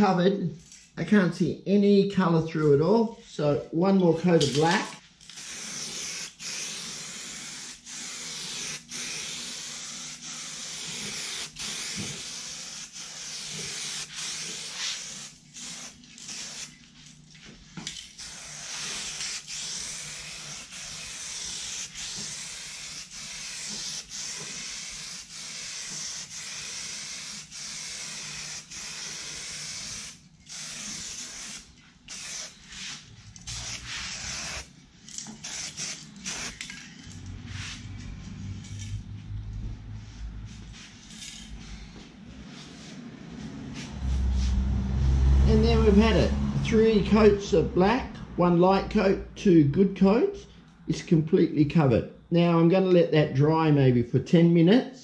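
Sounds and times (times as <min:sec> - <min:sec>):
aerosol spray paint hissing: 0:05.3 - 0:16.8, 0:18.1 - 0:34.7, 0:35.4 - 0:36.6.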